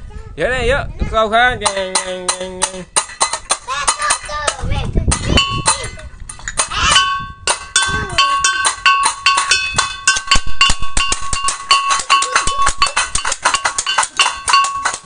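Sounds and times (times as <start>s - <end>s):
child's voice: 0.0s - 1.4s, 3.6s - 7.1s, 7.9s - 8.7s, 12.0s - 12.8s
gamelan metal percussion: 1.6s - 15.0s.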